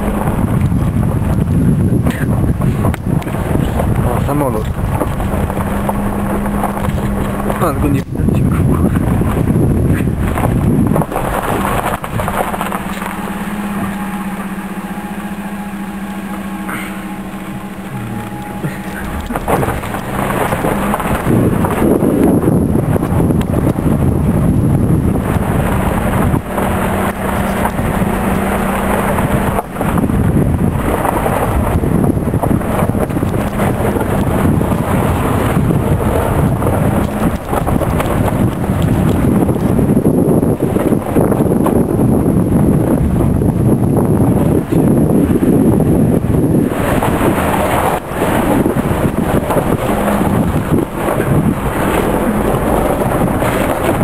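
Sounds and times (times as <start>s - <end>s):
car engine humming: 0.0s - 54.0s
tyres on gravel: 0.0s - 54.0s
stones crunching: 2.6s - 14.8s, 16.4s - 23.9s.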